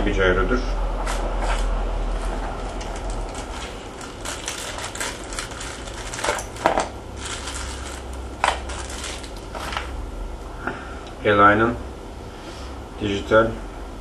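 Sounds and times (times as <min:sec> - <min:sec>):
plastic bag crinkling: 0:01.4 - 0:10.0.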